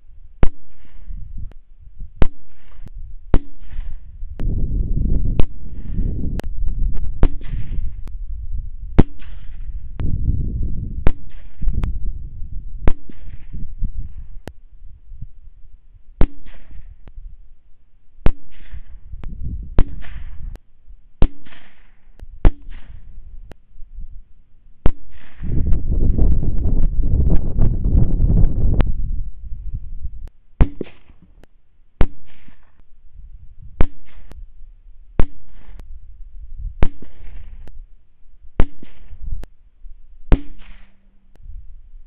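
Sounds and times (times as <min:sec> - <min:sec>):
low rumbling noise: 0:00.0 - 0:31.4
rifle shots: 0:00.4 - 0:01.2, 0:02.2 - 0:04.2, 0:07.1 - 0:08.0, 0:09.0 - 0:09.8, 0:11.0 - 0:11.8, 0:12.8 - 0:14.2, 0:16.2 - 0:17.1, 0:18.2 - 0:19.1, 0:19.8 - 0:20.6, 0:21.2 - 0:23.2, 0:24.8 - 0:25.6, 0:32.0 - 0:32.8, 0:33.8 - 0:34.4, 0:35.2 - 0:35.8, 0:36.8 - 0:37.7, 0:38.6 - 0:39.3, 0:40.3 - 0:41.0.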